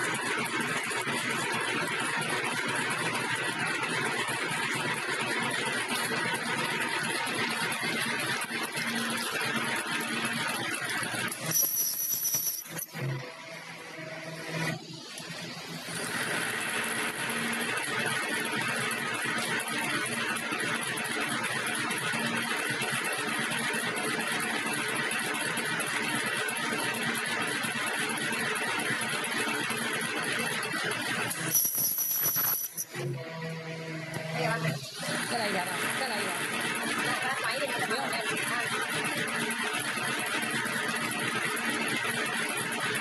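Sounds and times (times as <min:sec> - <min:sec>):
machine running: 0:00.0 - 0:43.0.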